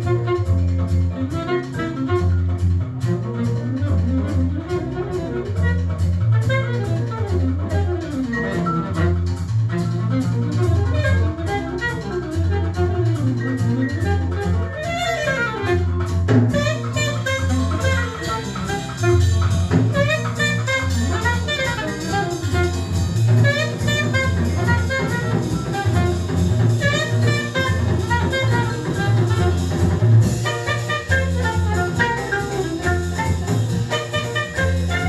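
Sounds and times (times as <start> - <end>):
jazz from a record player: 0.0 - 35.0.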